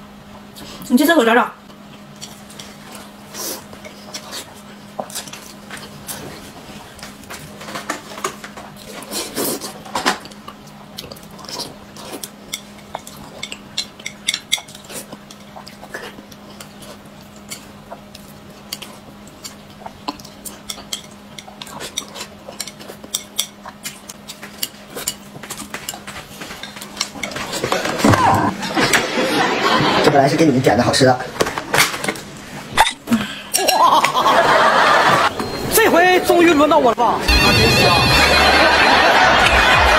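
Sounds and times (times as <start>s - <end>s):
person slurping and chewing noodles: 8.7s - 28.8s.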